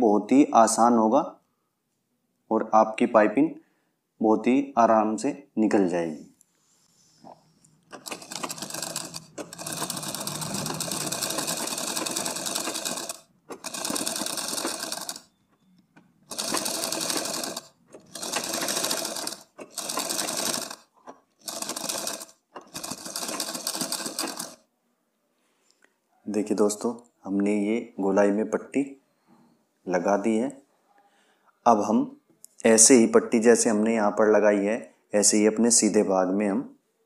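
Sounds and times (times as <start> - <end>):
sewing machine stitching: 7.8 - 24.6.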